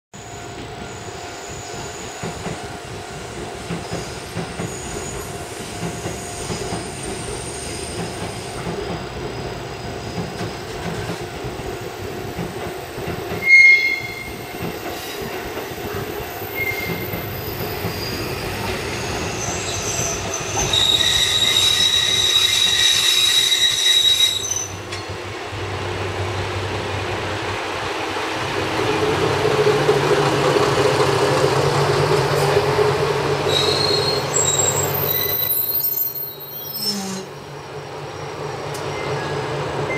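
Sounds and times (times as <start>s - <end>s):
diesel railcar running: 0.2s - 39.9s
brake and wheel squeal: 16.6s - 24.8s, 33.5s - 39.9s.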